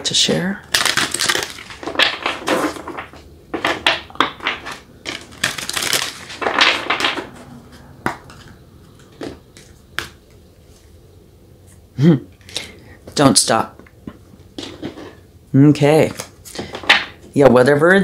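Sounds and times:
cards being shuffled: 0:00.6 - 0:07.4.

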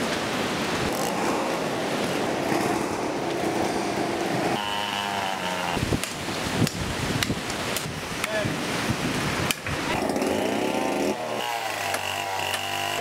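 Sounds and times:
rain: 0:00.0 - 0:13.0
wind: 0:00.0 - 0:13.0
machete chopping branches: 0:09.5 - 0:13.0.

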